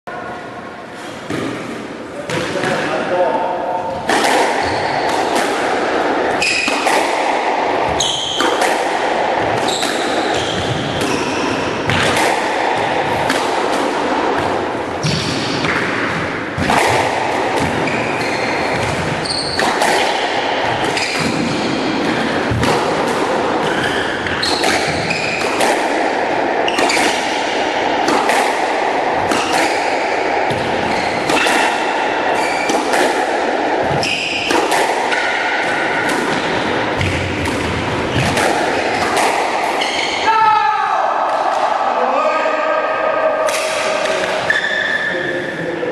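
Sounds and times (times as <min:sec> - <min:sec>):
steady background noise: 0:00.1 - 0:45.9
squash ball hitting rackets and walls: 0:00.9 - 0:45.1
shoes squeaking on wooden floor: 0:07.9 - 0:08.4, 0:09.6 - 0:11.5, 0:17.8 - 0:19.7, 0:30.6 - 0:31.3.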